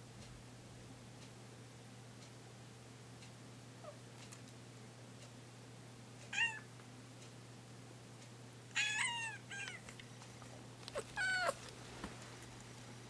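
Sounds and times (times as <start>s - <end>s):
cat meowing: 6.4s - 6.7s, 8.8s - 9.8s, 11.0s - 11.6s.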